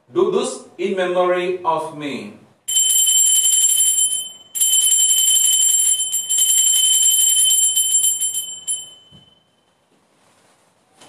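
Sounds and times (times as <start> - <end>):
altar bells jingling: 2.7 - 9.6.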